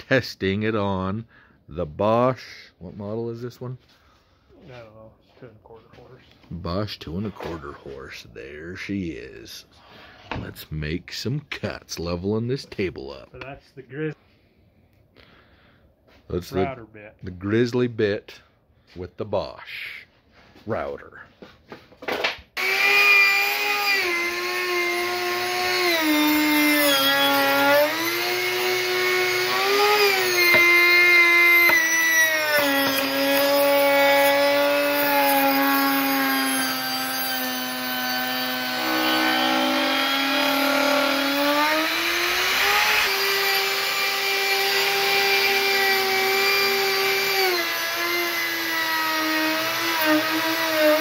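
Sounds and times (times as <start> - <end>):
router high whine: 22.6 - 51.0.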